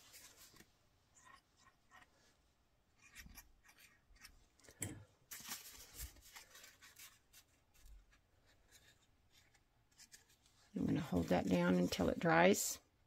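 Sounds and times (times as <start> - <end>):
paper rustling and rubbing: 0.0 - 2.1, 5.3 - 12.4.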